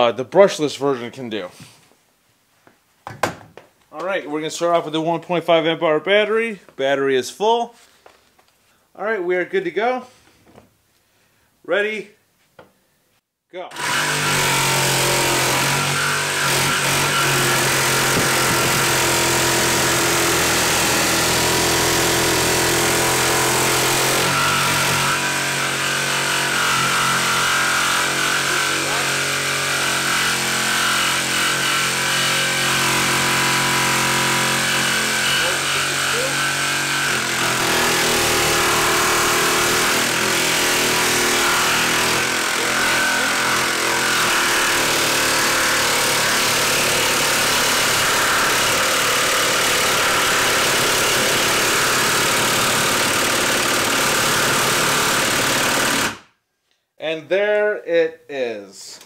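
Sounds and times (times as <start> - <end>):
jigsaw sawing wood: 13.7 - 56.3.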